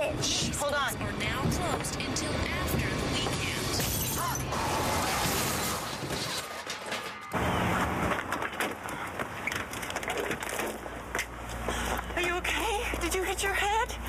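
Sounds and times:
car crash smash: 4.6s - 7.4s
knocks and rattles: 5.4s - 10.8s.

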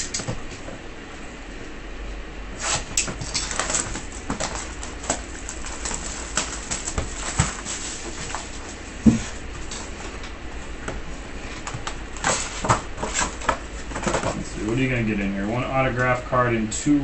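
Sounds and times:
plastic wrap crinkling: 3.0s - 8.8s.

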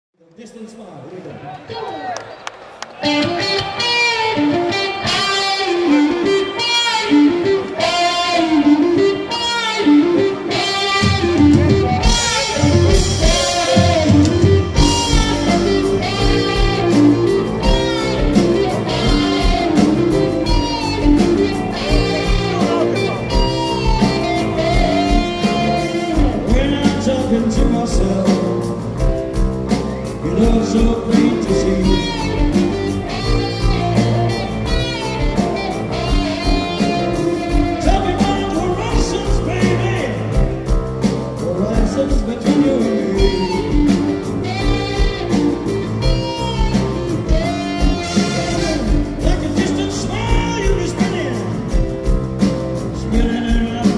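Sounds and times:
live blues-rock band: 2.8s - 53.9s
man singing: 12.0s - 20.4s, 24.6s - 29.0s, 30.2s - 32.8s, 36.1s - 40.4s, 41.4s - 45.1s, 47.3s - 51.8s, 52.9s - 53.9s.

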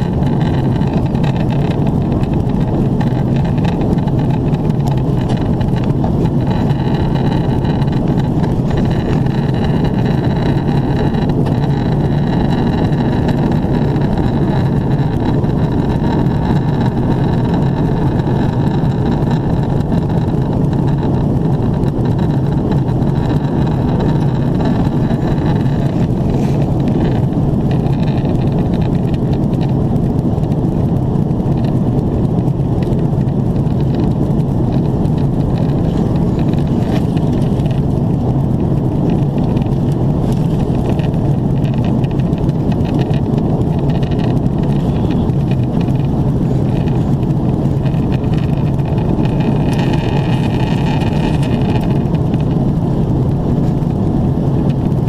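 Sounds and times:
aircraft cabin engine rush: 0.0s - 55.0s
faint high whine: 44.8s - 45.4s.

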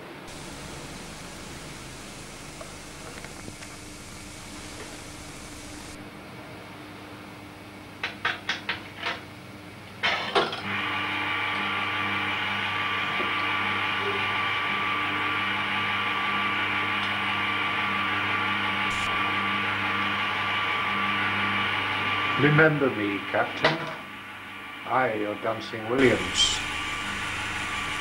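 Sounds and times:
electric motor and gearing running: 0.3s - 6.0s, 10.7s - 23.4s, 25.9s - 28.0s.

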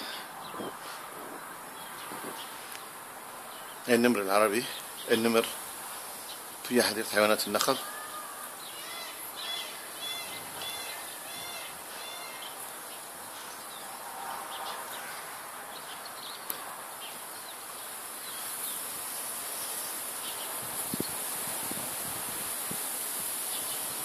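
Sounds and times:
small bird chirping: 7.7s - 18.9s.

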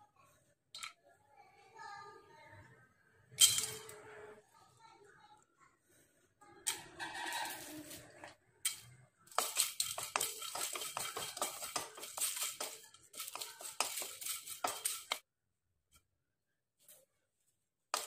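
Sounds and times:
whole spices rattling into a pan: 6.7s - 15.2s
wooden spatula scraping a pan: 6.8s - 8.4s, 9.3s - 15.2s.

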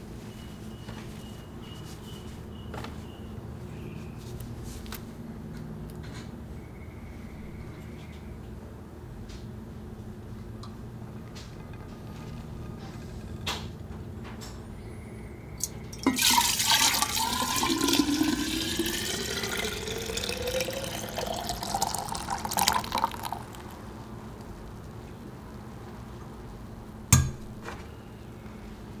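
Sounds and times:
liquid pouring into glass jar: 15.6s - 23.8s.

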